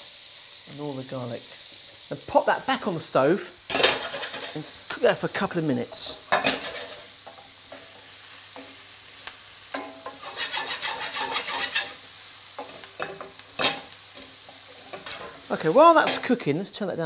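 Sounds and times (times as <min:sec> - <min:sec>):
vegetables sizzling in oil: 0:00.0 - 0:17.0
wooden spoon stirring and scraping: 0:09.7 - 0:12.0.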